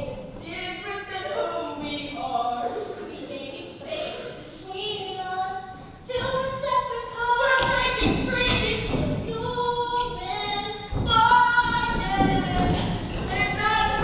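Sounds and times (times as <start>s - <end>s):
women singing a cappella: 0.0s - 14.0s
low thuds and rumble: 7.4s - 14.0s.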